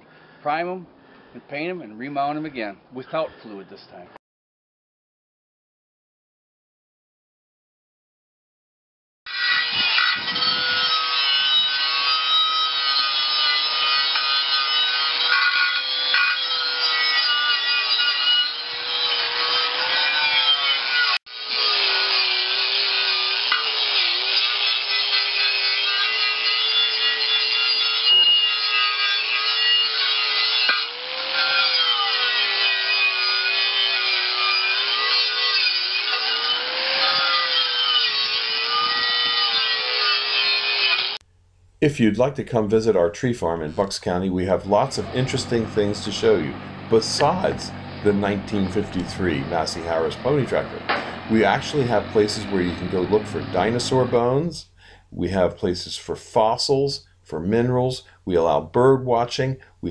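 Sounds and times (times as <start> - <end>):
angle grinder motor whine: 9.3 - 41.2, 44.8 - 54.2.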